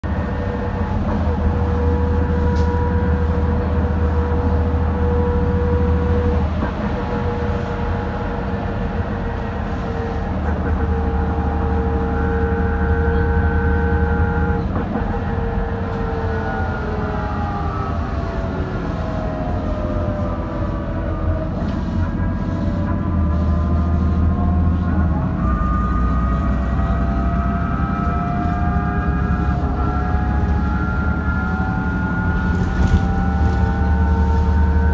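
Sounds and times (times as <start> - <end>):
engine and road rumble: 0.0 - 34.9
gearbox whine: 24.0 - 34.9.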